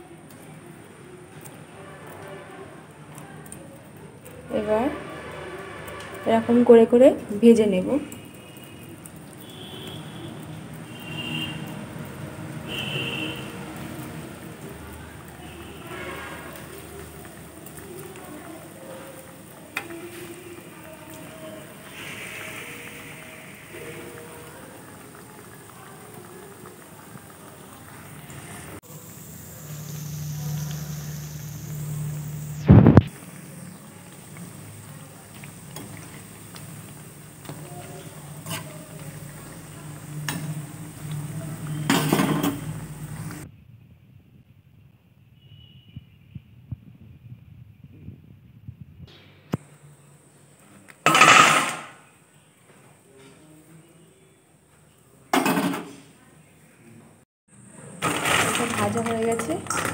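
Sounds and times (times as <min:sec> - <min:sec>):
hot oil bubbling and sizzling: 0:00.0 - 0:52.0, 0:57.5 - 0:59.9.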